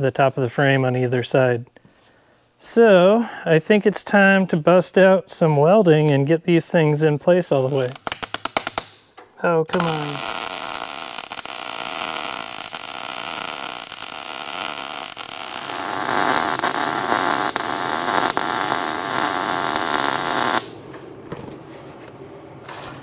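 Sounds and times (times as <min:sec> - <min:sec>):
welding arc crackling: 0:07.5 - 0:09.1, 0:09.7 - 0:20.9.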